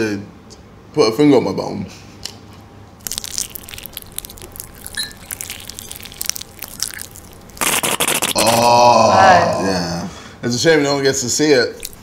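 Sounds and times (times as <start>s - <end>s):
crunchy food being chewed: 3.0s - 8.7s, 11.7s - 12.0s.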